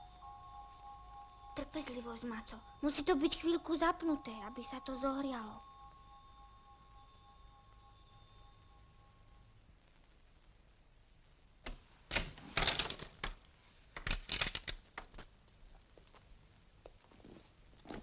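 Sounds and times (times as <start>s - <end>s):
door bolt and lock rattling: 11.7s - 13.4s.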